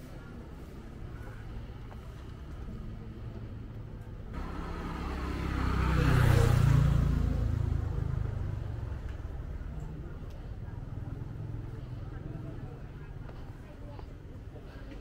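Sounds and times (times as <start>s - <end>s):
vehicle passing by: 4.3s - 12.9s.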